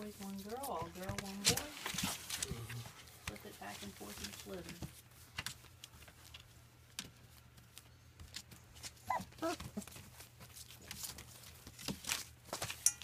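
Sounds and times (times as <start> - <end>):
puppies crunching kibble: 0.1 - 12.8
puppy whimpers: 9.0 - 10.0.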